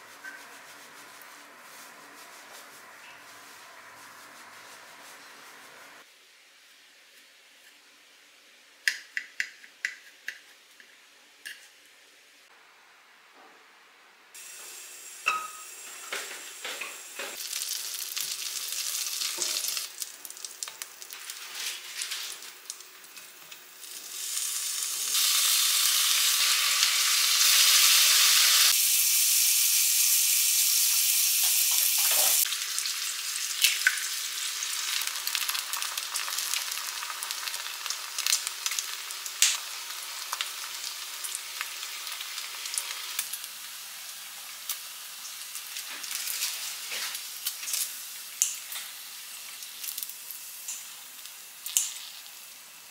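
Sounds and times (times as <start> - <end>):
food sizzling in a frying pan: 14.4 - 52.9.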